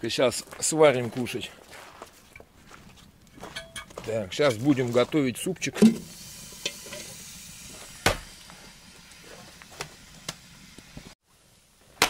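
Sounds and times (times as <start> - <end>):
hatchet chopping wood: 8.0 - 8.3.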